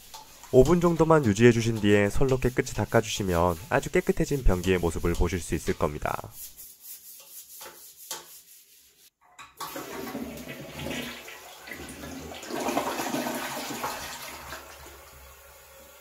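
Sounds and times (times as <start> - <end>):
toilet brush scrubbing: 0.0 - 15.1
toilet flushing: 9.6 - 16.0.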